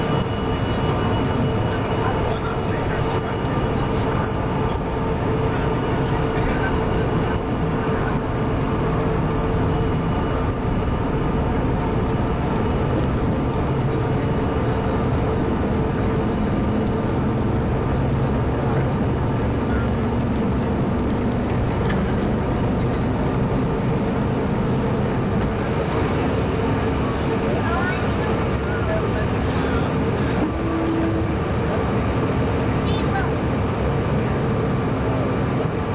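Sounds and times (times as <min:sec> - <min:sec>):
jet engines at takeoff power: 0:00.0 - 0:35.9.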